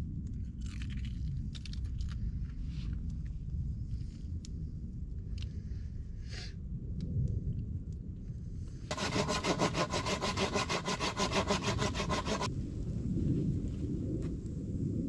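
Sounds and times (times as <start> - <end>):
hand saw cutting wood: 8.9 - 12.5.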